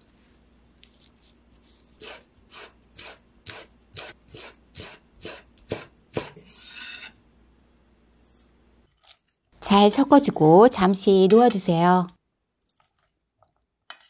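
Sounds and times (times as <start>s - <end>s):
knife scraping along board: 2.0s - 7.2s.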